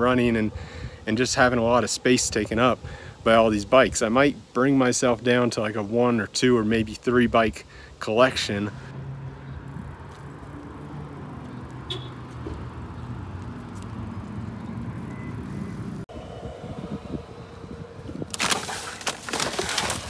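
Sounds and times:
road traffic hum: 0.0s - 1.1s, 6.4s - 19.7s.

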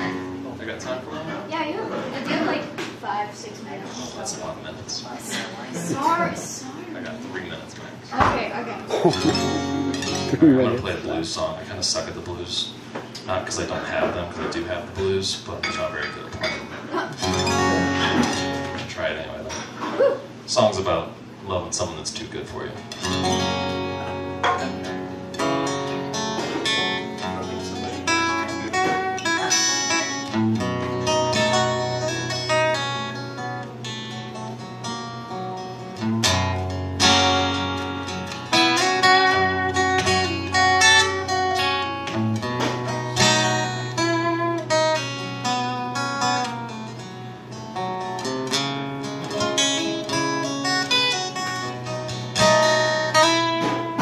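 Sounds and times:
acoustic guitar strummed chords: 0.0s - 1.2s, 8.3s - 11.4s, 14.8s - 19.0s, 22.8s - 54.0s.

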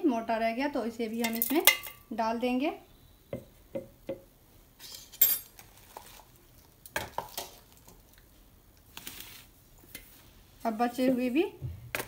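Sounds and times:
metal utensils clinking: 1.2s - 2.0s.

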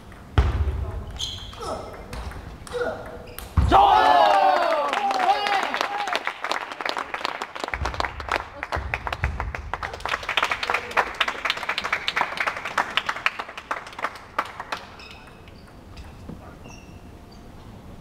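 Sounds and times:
spectators clapping: 3.8s - 15.6s.

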